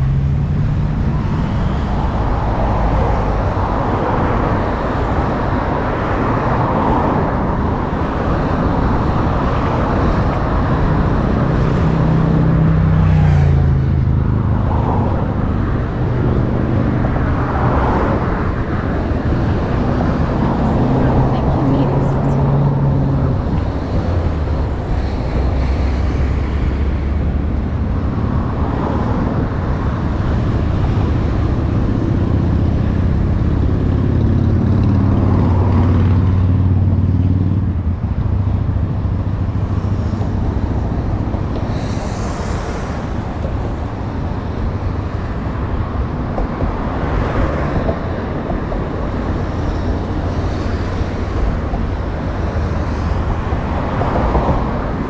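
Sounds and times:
heavy vehicle engine passing: 0.0 - 55.0
road traffic: 0.0 - 55.0.

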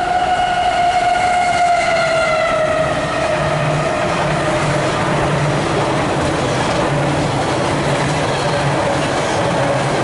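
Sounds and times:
train wheels clattering on rail: 2.9 - 10.0.

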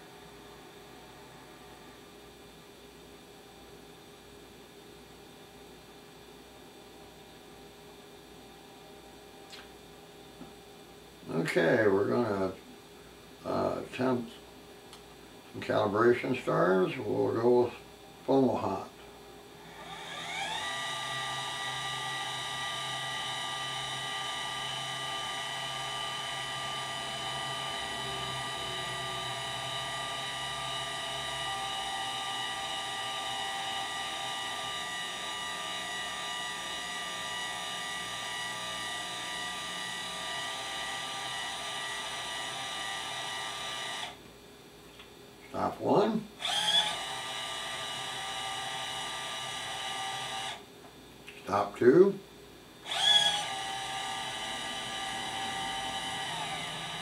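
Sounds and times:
telescope mount motor whine: 0.0 - 2.6, 19.6 - 44.2, 46.4 - 50.6, 52.8 - 57.0.

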